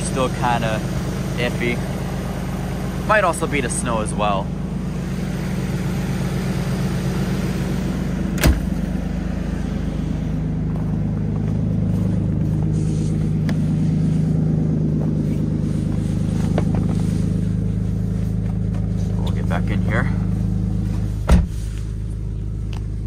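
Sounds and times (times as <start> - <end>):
car engine idling: 0.0 - 23.0
car hood slamming shut: 8.3 - 8.8, 21.2 - 21.6.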